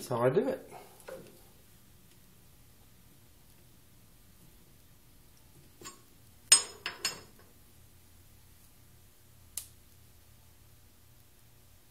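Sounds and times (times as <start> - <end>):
metal-on-metal clinks: 5.8 - 7.4.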